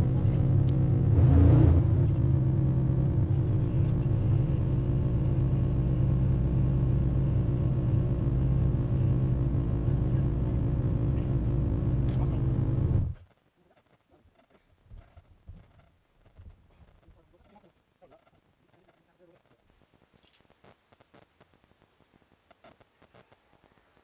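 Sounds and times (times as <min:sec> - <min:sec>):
engine idling with low rumble: 0:00.0 - 0:13.2.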